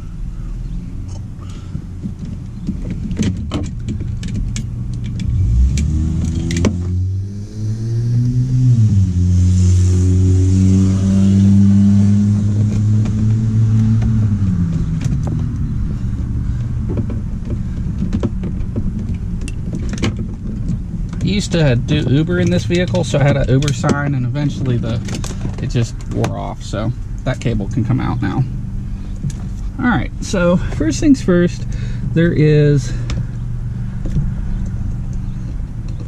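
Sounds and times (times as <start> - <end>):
car engine running: 0.0 - 36.0
wiring clicks and rustles: 1.0 - 6.9, 12.5 - 28.5.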